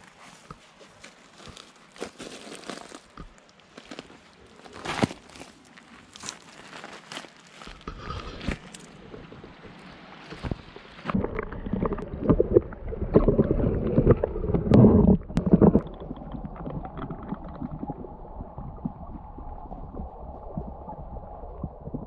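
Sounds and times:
river water splashing and gurgling: 4.0s - 21.9s
muffled rush of water: 7.9s - 22.0s.

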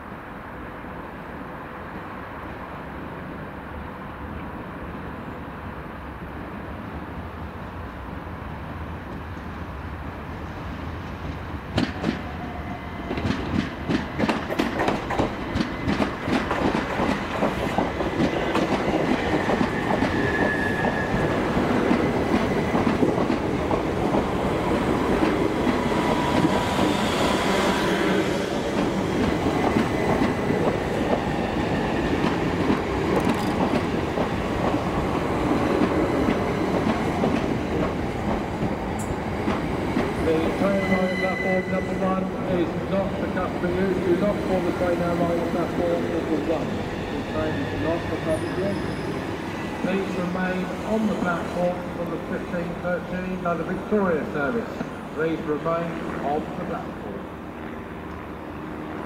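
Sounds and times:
train rumbling past: 0.7s - 59.0s
train wheels clicking over joints: 13.1s - 27.0s, 28.7s - 40.4s
wheel or brake squeals: 20.1s - 21.2s, 40.6s - 42.1s, 47.7s - 49.3s.

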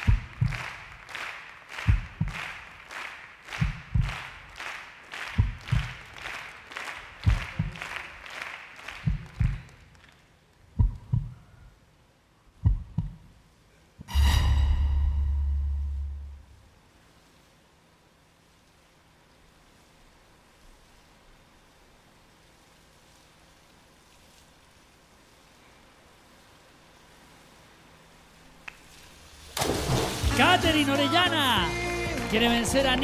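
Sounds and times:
heartbeat-like low thuds: 0.0s - 0.7s, 1.9s - 2.4s, 3.6s - 4.2s, 5.4s - 6.1s, 7.2s - 7.8s, 9.0s - 9.7s, 10.8s - 11.4s, 12.6s - 13.3s
swishing pulse: 14.1s - 16.6s
low boom with buzzing tone: 14.1s - 16.7s.

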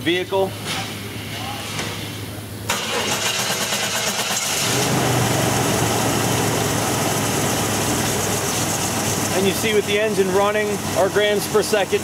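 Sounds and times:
engine idling: 2.7s - 12.0s.

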